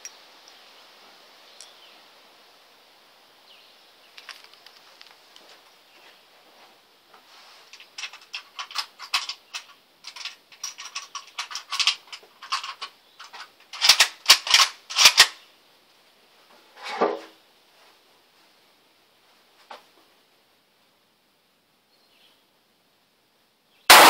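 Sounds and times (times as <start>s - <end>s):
rifle bolt clicks and clacks: 7.8s - 15.4s.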